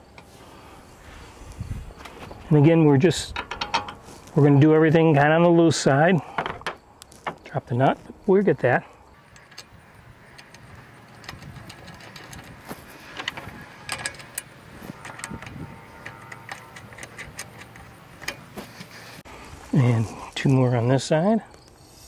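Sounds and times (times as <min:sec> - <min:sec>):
small metallic clicks and clinks: 0:09.2 - 0:18.5.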